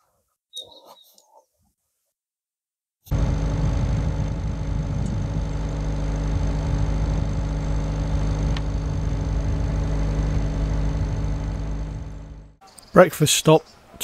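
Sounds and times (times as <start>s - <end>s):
boat engine humming: 3.1s - 12.6s.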